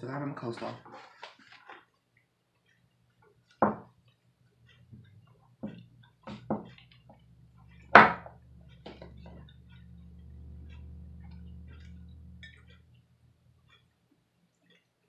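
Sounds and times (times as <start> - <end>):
low steady hum: 3.7 - 14.9.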